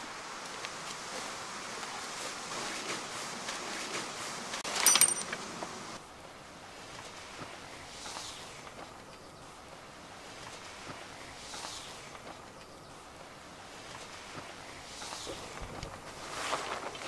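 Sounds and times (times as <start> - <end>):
metallic jingling clatter: 4.7 - 5.4
fabric tent rustling: 15.1 - 17.0.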